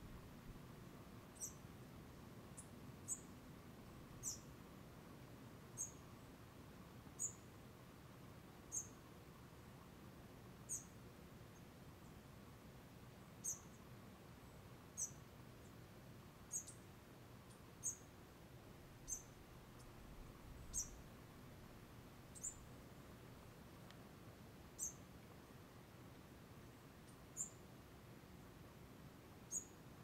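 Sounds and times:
faint background hiss: 0:00.0 - 0:30.0
small animal high chirp: 0:01.4 - 0:01.6, 0:04.2 - 0:04.5, 0:08.7 - 0:09.0, 0:16.5 - 0:16.8, 0:17.8 - 0:18.0, 0:19.0 - 0:19.4, 0:20.7 - 0:21.0, 0:22.3 - 0:22.6, 0:24.8 - 0:25.0, 0:29.5 - 0:29.8.

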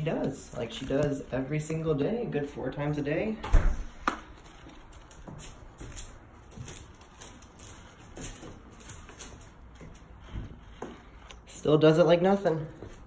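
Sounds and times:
footsteps on concrete stairs: 0:04.0 - 0:11.5, 0:12.6 - 0:13.0.

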